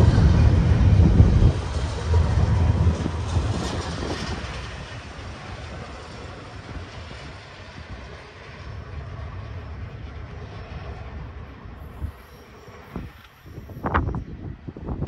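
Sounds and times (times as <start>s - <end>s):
freight train rolling on rails: 0.0s - 15.0s.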